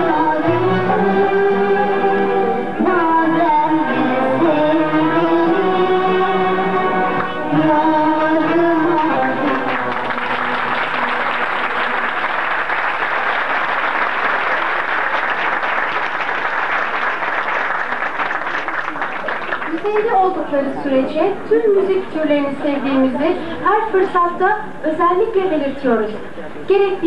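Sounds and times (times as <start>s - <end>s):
children's choir with ensemble: 0.0s - 18.2s
audience applauding: 8.2s - 20.5s.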